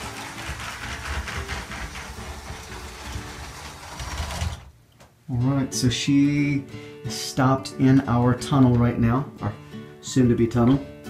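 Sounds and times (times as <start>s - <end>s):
rapid clicking wheels: 0.0s - 4.7s
toy train motor whirring: 0.0s - 4.7s.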